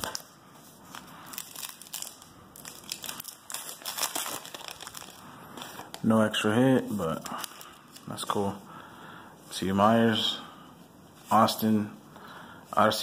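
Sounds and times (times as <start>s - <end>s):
foil wrapper crinkling: 0.9s - 6.1s, 7.0s - 8.4s.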